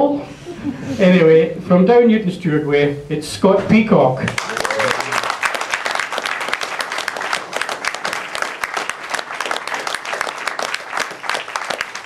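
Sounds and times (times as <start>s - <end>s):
audience applauding: 4.3s - 12.0s.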